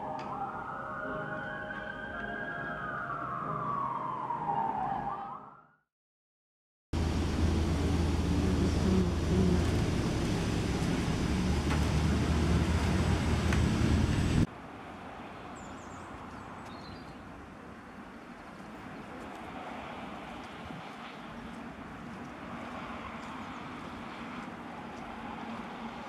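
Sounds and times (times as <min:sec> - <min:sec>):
quiet street ambience: 0:00.0 - 0:05.0, 0:07.0 - 0:26.0
traffic rumble: 0:07.0 - 0:26.0.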